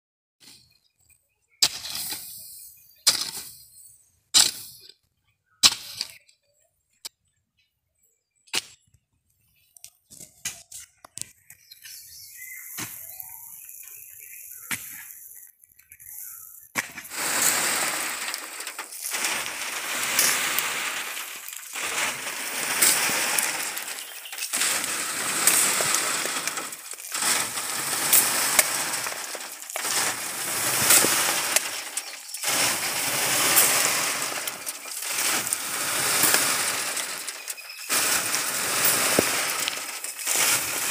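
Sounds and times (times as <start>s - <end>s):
hoe chopping soil: 1.6s - 2.4s, 3.0s - 3.6s, 4.4s - 4.8s, 5.6s - 6.2s, 11.9s - 15.2s, 16.0s - 40.9s
soil rushing through wire mesh: 12.3s - 40.9s.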